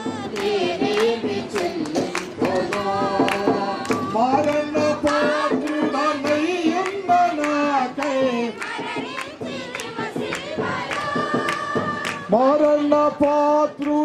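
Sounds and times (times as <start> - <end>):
devotional hymn music: 0.0 - 14.0
percussion beat: 0.0 - 14.0.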